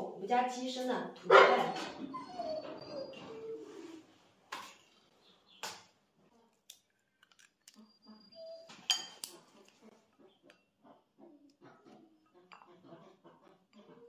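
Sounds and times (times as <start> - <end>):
eggs cracked on bowl rim: 6.6 - 7.8
chopsticks clinking in bowl: 8.8 - 9.4.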